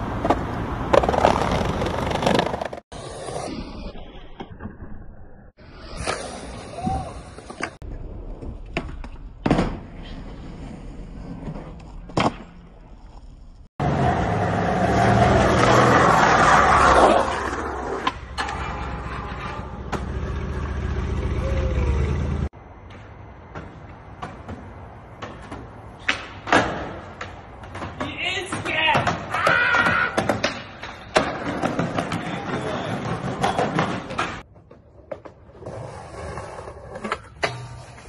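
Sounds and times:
wheels rolling on concrete: 0:00.0 - 0:04.4, 0:05.7 - 0:38.0
skateboard popping and landing: 0:00.1 - 0:03.2, 0:05.9 - 0:14.0, 0:23.5 - 0:38.0.

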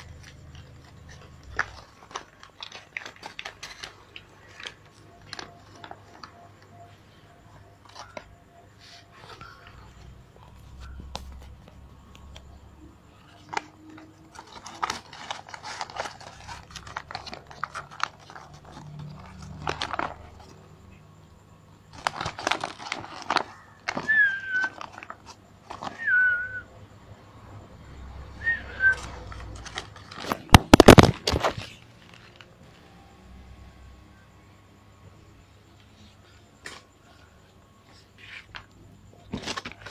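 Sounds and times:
plastic bag crinkling: 0:00.0 - 0:06.3, 0:13.2 - 0:20.6, 0:21.9 - 0:26.5, 0:28.8 - 0:32.5.

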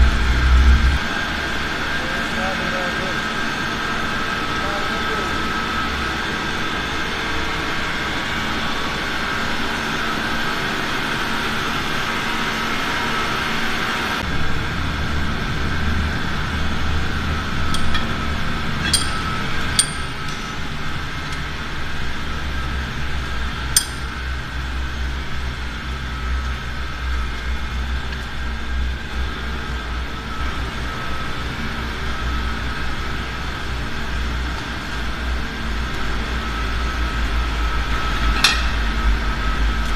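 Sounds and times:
drilling machinery droning: 0:00.0 - 0:39.9
metallic clinks of steel rods: 0:18.8 - 0:20.4, 0:23.8 - 0:24.1.

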